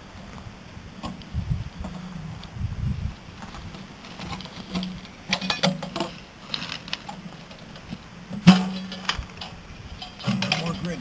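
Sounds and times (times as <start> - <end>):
metal ammo can clicks and clanks: 4.8 - 6.9, 7.7 - 11.0.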